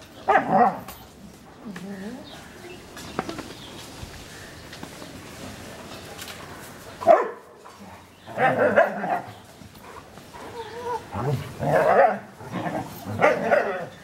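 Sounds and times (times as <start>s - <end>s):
dogs barking and yipping: 0.0s - 1.4s, 6.3s - 14.0s
dog whining: 10.4s - 11.3s.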